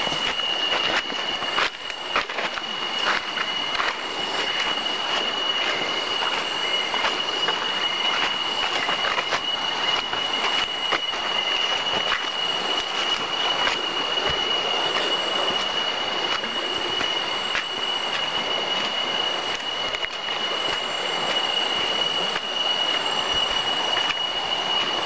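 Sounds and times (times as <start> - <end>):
cicadas droning: 0.0 - 25.0
footsteps crunching on dry leaves: 0.0 - 25.0.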